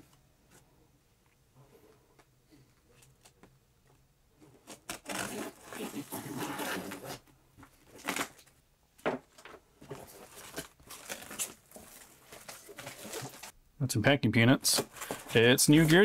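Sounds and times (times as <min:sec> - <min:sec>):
cardboard tearing: 0:04.6 - 0:07.2, 0:07.9 - 0:08.5, 0:09.9 - 0:13.5
packing tape ripping: 0:04.7 - 0:07.2, 0:07.9 - 0:08.5, 0:10.2 - 0:13.5.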